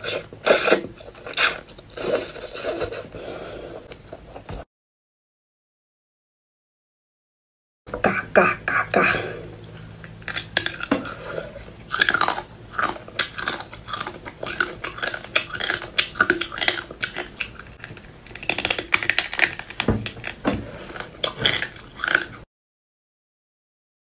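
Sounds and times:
crab shells crunching being chewed: 9.8s - 22.5s.

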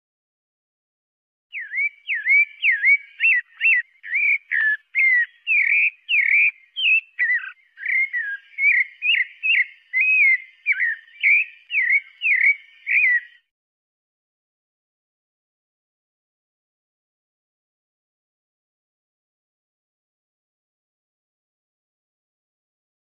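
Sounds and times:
thrush singing whistled notes: 1.5s - 13.5s.

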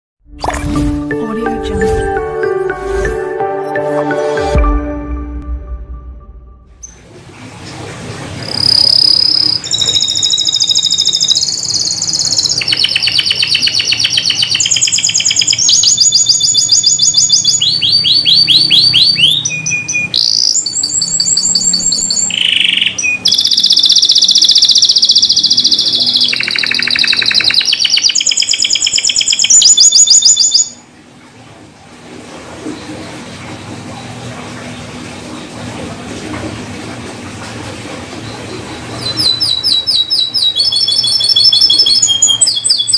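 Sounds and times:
canary singing fast trills: 8.4s - 30.8s, 38.3s - 42.9s.

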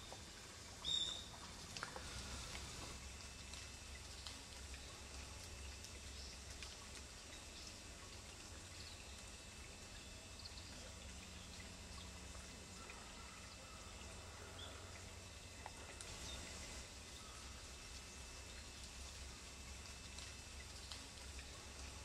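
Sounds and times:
creek trickling: 0.0s - 22.0s
low steady rumble: 0.0s - 22.0s
small ticks: 0.8s - 10.8s, 14.9s - 22.0s.

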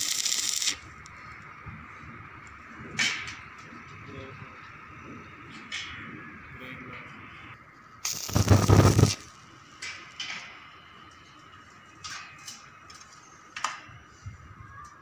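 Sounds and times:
arc welder crackling: 0.0s - 1.2s, 8.0s - 9.4s.

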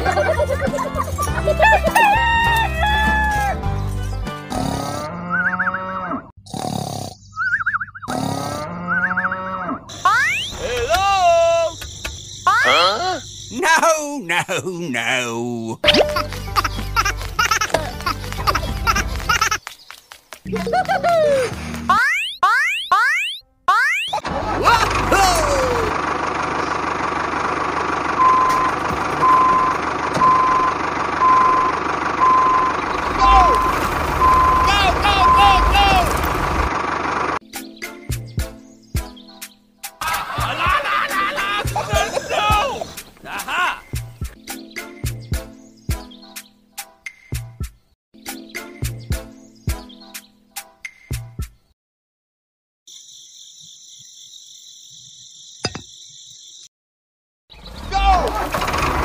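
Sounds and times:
cartoon snoring: 4.4s - 7.3s, 8.0s - 9.8s
reversing alarm beeps: 28.2s - 36.0s.

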